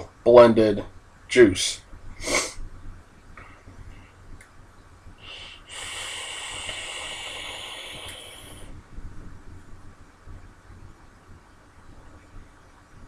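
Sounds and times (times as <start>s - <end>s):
vaping atomizer hissing: 2.2s - 2.6s, 5.2s - 8.8s.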